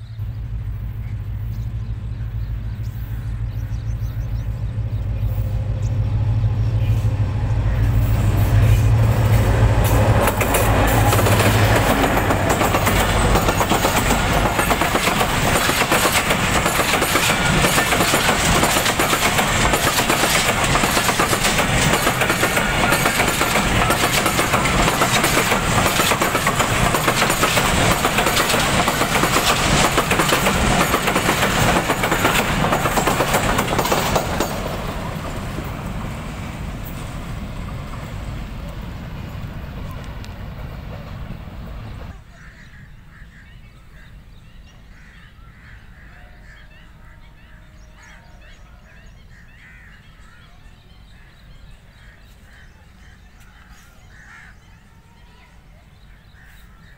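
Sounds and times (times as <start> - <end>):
train wagons rolling on rails: 0.0 - 42.3
diesel locomotive engine hum: 0.0 - 56.9.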